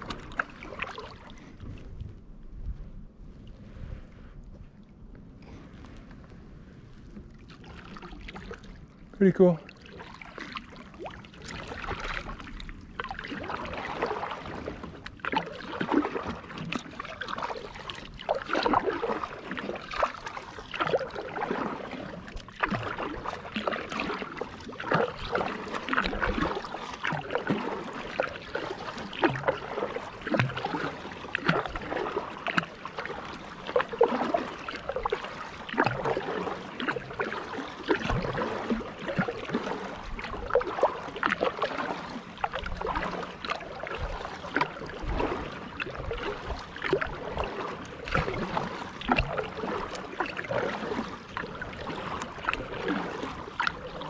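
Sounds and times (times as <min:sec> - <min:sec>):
paddle splashing in water: 0:00.0 - 0:54.0
water dripping off paddle: 0:13.0 - 0:54.0.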